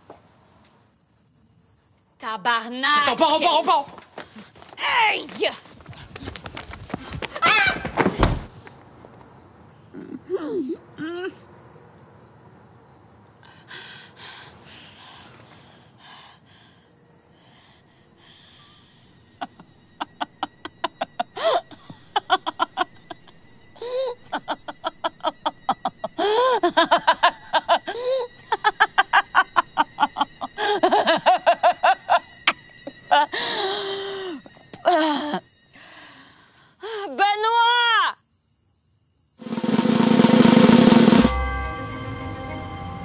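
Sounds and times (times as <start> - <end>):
woman breathing heavily: 5.7 - 7.4, 13.3 - 19.6, 21.0 - 22.3, 23.7 - 24.3, 26.1 - 26.8, 27.8 - 28.6, 30.4 - 31.0, 33.3 - 37.2
woman cackling: 19.4 - 35.4.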